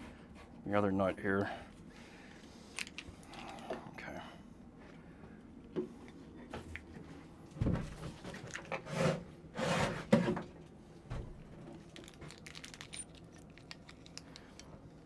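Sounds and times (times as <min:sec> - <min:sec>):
rustling of small parts handled: 0:11.6 - 0:15.0.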